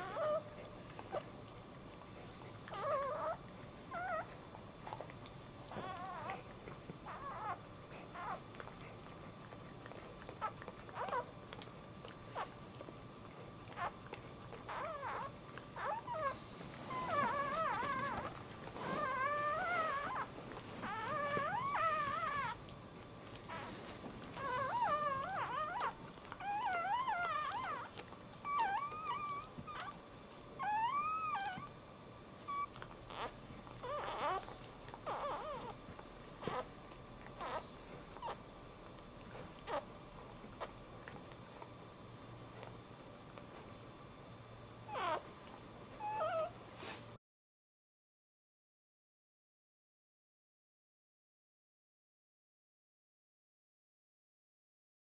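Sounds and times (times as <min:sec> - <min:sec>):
puppy crying with squeals: 0:00.0 - 0:00.5, 0:02.7 - 0:04.4, 0:05.7 - 0:06.4, 0:07.0 - 0:08.4, 0:10.4 - 0:11.3, 0:13.7 - 0:13.9, 0:14.7 - 0:22.6, 0:23.5 - 0:30.0, 0:30.6 - 0:31.7, 0:32.4 - 0:35.8, 0:36.4 - 0:36.7, 0:37.4 - 0:38.4, 0:39.6 - 0:39.9, 0:44.9 - 0:45.3, 0:46.0 - 0:46.6.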